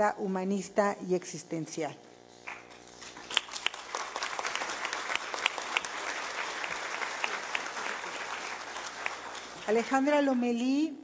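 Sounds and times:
audience applauding: 3.3 - 10.2.

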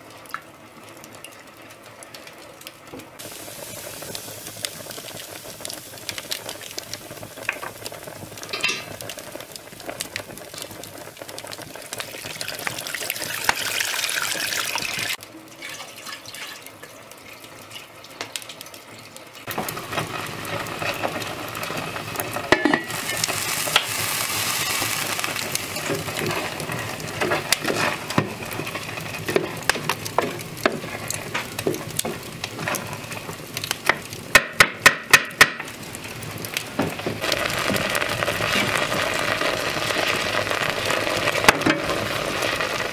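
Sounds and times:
water sizzling in hot pot: 0.0 - 42.9
wood fire crackling: 0.0 - 42.9
metallic clinks of pot: 8.5 - 9.0, 22.5 - 23.9.

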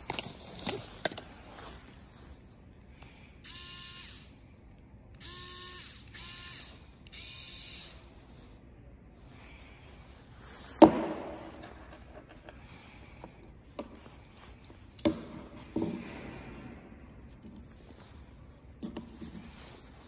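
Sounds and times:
electric screwdriver motor whining: 5.2 - 8.0.

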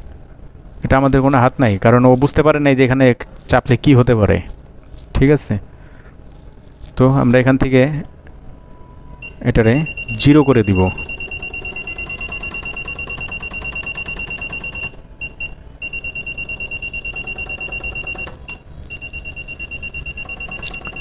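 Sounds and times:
high-pitched machine beeps: 8.6 - 21.0.

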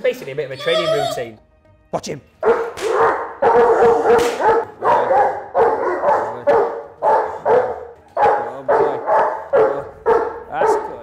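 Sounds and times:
dog barking rapidly: 2.4 - 11.0.

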